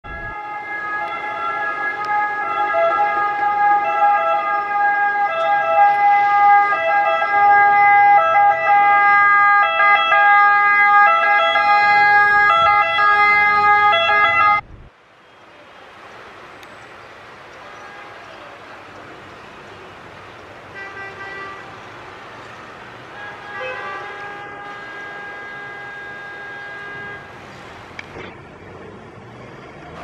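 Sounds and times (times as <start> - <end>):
street noise: 0.0 - 30.0
ambulance siren: 0.1 - 14.6, 22.4 - 27.5.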